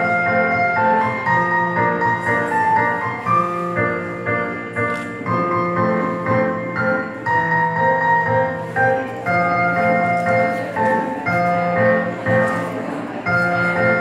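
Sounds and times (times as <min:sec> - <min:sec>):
piano melody: 0:00.0 - 0:14.0.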